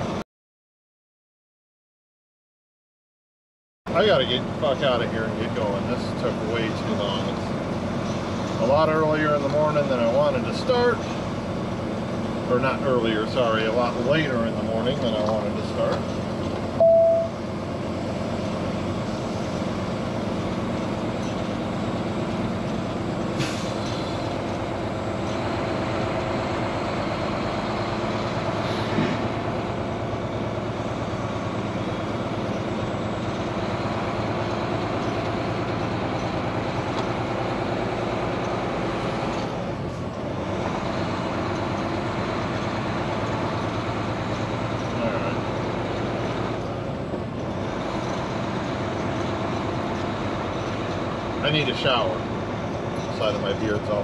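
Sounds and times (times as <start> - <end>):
truck diesel engine running: 3.9 - 54.0
loud tone: 16.8 - 17.4.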